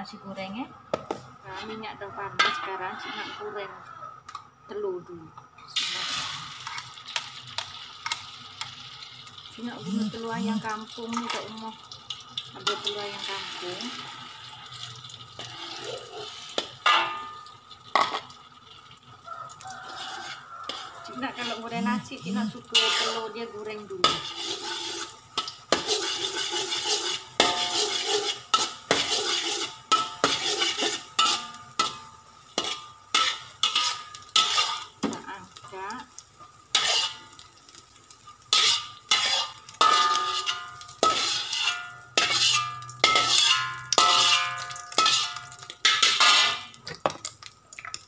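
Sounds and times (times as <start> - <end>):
metal spatula scraping wok: 1.4 - 3.8, 12.6 - 14.4, 15.4 - 18.3, 19.6 - 46.8.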